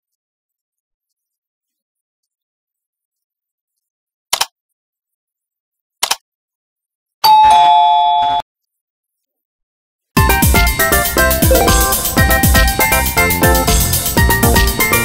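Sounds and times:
mouse clicks: 6.0 - 6.2
two-tone bell chime: 7.2 - 8.4, 10.9 - 12.7.

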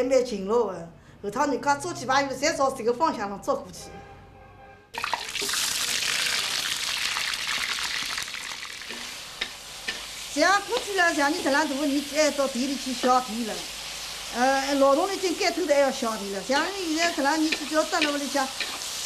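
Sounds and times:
woman speaking: 0.0 - 3.9, 10.4 - 13.7, 14.3 - 18.6
fish sizzling in hot oil: 5.0 - 19.0.

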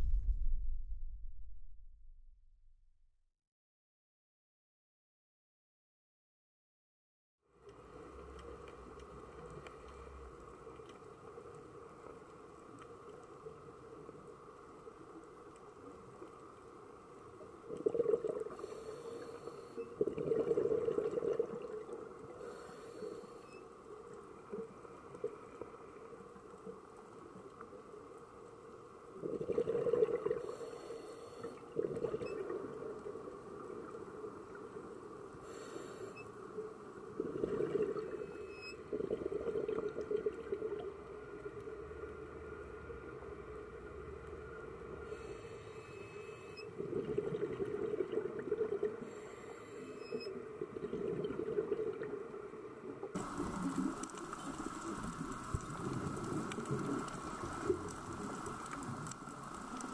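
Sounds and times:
low underwater hum: 0.0 - 2.9, 7.5 - 59.9
regulator bubbles rushing out: 20.0 - 21.9, 29.2 - 30.4, 31.8 - 32.8, 37.1 - 38.2, 38.9 - 40.8, 46.8 - 48.9, 53.2 - 59.9.

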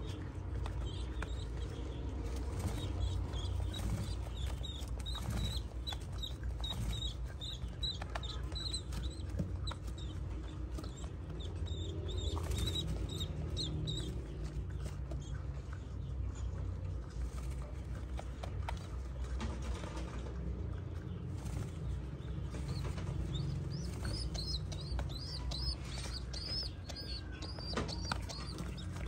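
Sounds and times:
steady low rumble: 0.0 - 29.0
pigeon squab begging squeaks: 2.6 - 14.4, 22.7 - 29.0.

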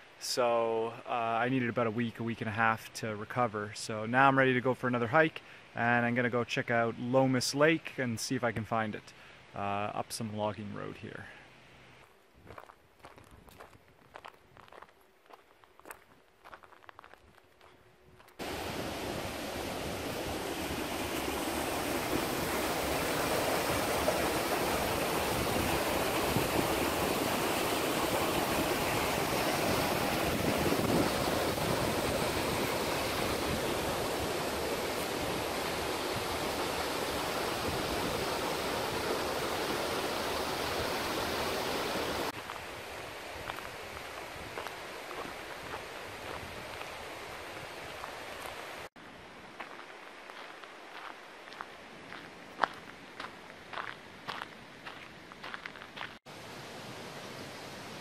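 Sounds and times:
creek rushing over boulders: 18.4 - 48.9.

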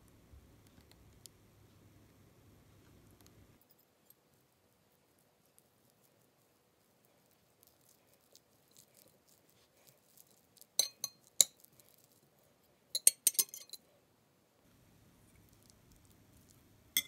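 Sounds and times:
soft mixing ticks: 0.0 - 2.2, 2.8 - 12.3, 15.3 - 17.0
metal chopsticks clinking on plate: 10.8 - 11.6, 13.0 - 13.8.

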